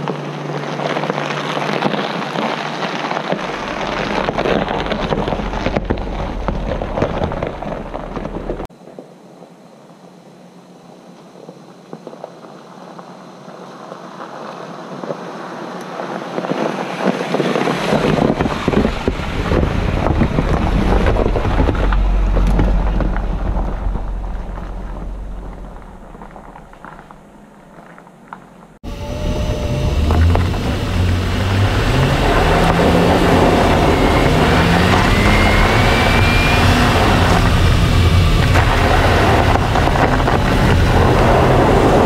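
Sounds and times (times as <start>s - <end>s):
vehicle driving: 0.0s - 8.7s, 15.6s - 42.0s
wind buffeting microphone: 3.3s - 8.7s, 16.3s - 27.5s, 28.8s - 42.0s.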